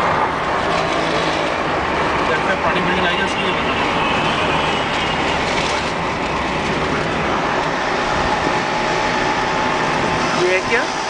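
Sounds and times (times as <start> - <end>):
vehicle road and engine noise: 0.0 - 11.0.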